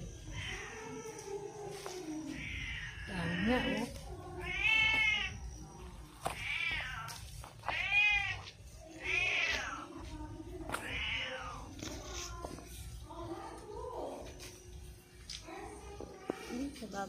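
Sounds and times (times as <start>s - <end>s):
cat meowing: 2.2s - 5.6s, 6.3s - 10.0s, 10.8s - 12.2s.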